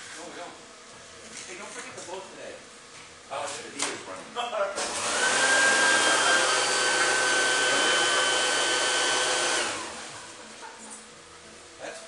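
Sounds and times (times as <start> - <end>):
electric blower motor running: 4.8 - 10.6.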